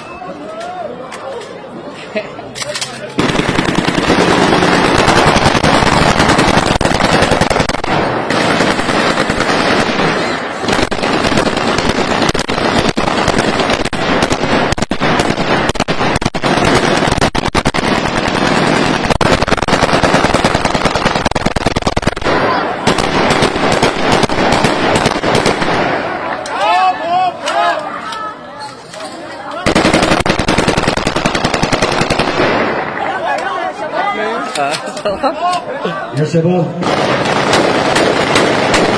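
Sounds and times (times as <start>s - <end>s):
automatic gunfire bursts: 3.2s - 25.9s, 29.6s - 32.8s, 36.8s - 38.9s.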